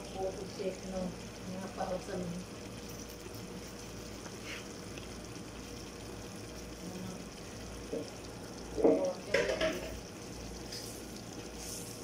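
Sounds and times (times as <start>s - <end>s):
stew simmering hiss: 0.0s - 12.0s
knock in pot: 8.8s - 10.0s.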